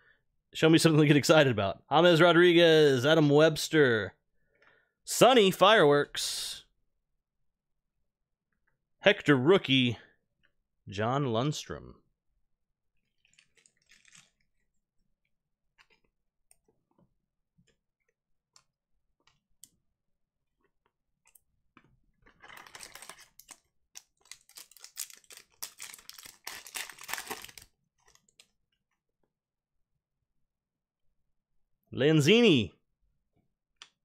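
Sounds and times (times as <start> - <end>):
foil wrapper tearing and crinkling: 13.3 - 14.4, 22.4 - 28.2
cards being handled: 22.6 - 28.2.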